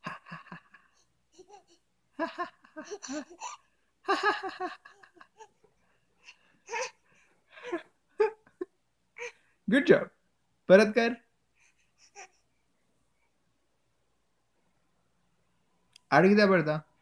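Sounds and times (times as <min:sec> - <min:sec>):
person laughing: 0:00.0 - 0:05.5, 0:07.6 - 0:09.3.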